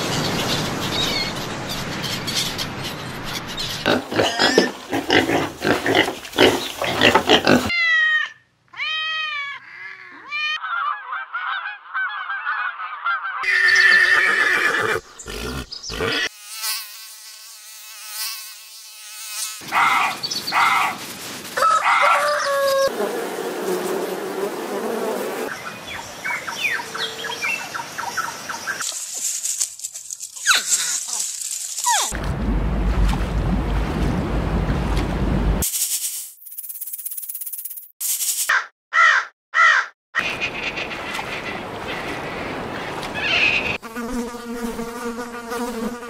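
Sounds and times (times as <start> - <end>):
varied animal calls: 3.8 - 16.3, 19.6 - 21.0.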